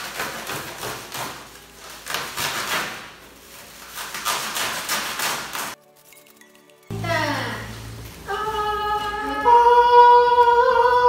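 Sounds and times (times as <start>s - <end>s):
blade slicing plastic wrap and tape: 0.0s - 6.4s.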